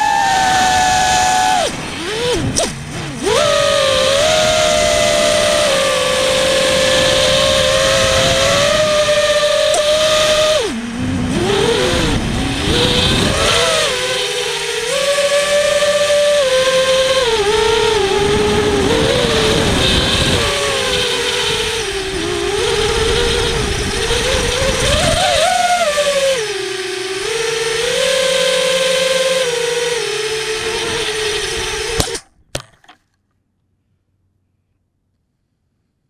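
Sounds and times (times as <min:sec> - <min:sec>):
wind and prop-wash rumble: 0:00.0 - 0:32.1
drone motors whining: 0:00.0 - 0:33.0.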